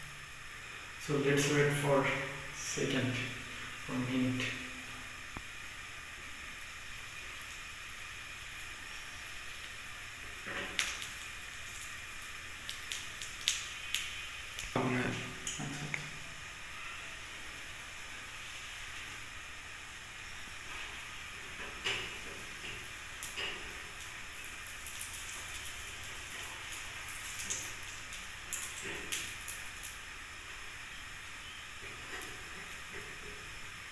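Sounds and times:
batter sizzling in oil: 0:00.0 - 0:33.9.

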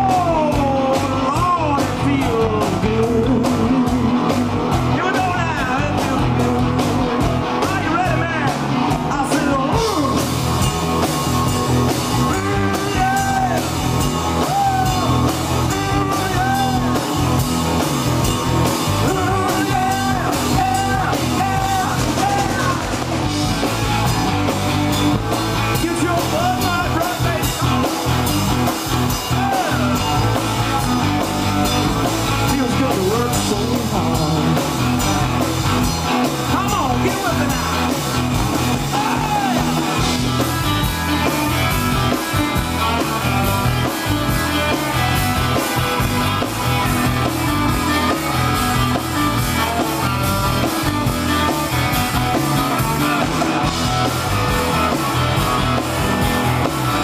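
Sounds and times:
person singing: 0:00.0 - 0:06.6, 0:12.2 - 0:17.3, 0:18.9 - 0:23.0, 0:32.4 - 0:35.5, 0:38.7 - 0:40.1
live rock band playing: 0:00.0 - 0:57.0.

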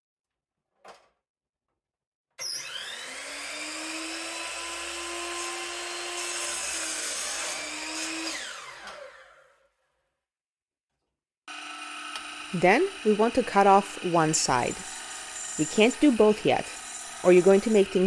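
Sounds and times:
saw blade cutting wood: 0:02.4 - 0:09.5, 0:11.5 - 0:18.0
miter saw motor whining: 0:02.4 - 0:09.7, 0:11.5 - 0:18.0.

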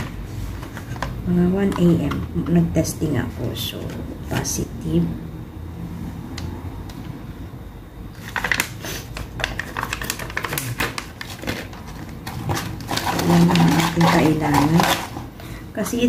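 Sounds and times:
packaging crinkling and rustling: 0:08.2 - 0:15.3.

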